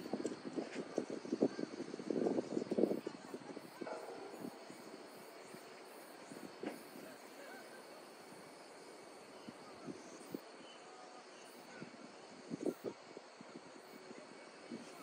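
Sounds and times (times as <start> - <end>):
faint footsteps on pavement: 0.0 - 2.2.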